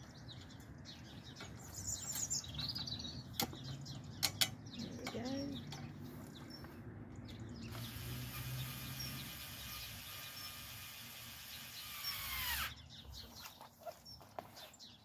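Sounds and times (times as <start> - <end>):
cordless drill running: 7.7 - 12.8.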